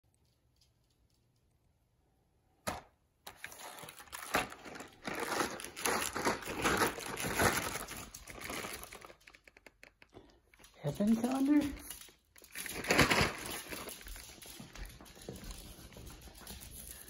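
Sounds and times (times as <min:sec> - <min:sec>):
cardboard crinkling and rustling: 0:03.3 - 0:10.0, 0:10.8 - 0:14.8.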